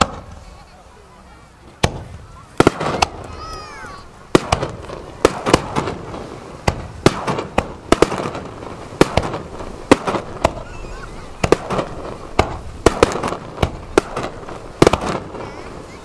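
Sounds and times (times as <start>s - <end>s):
fireworks bangs: 0.0s - 16.0s.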